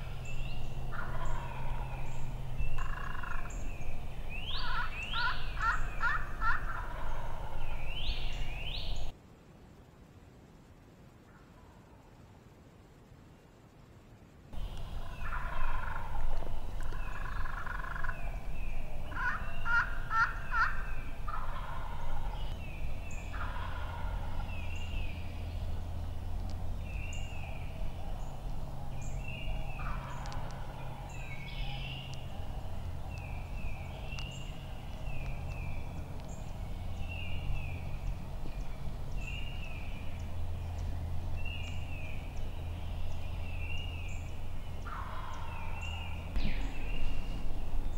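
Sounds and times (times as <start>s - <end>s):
turkey gobbling: 0.9s - 2.1s, 2.8s - 3.5s, 4.5s - 8.3s, 14.6s - 18.3s, 19.1s - 22.5s, 23.3s - 24.5s, 29.8s - 30.9s, 44.8s - 46.5s.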